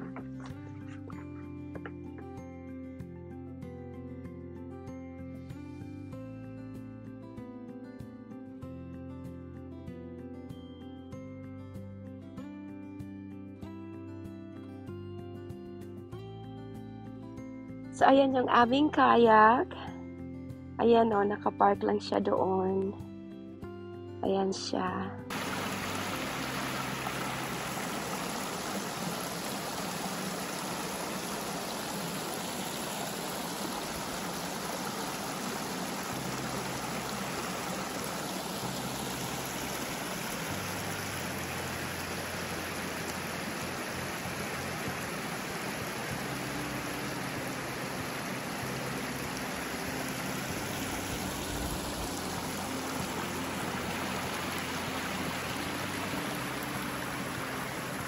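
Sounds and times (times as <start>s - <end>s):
creek water babbling over rocks: 25.3s - 58.0s.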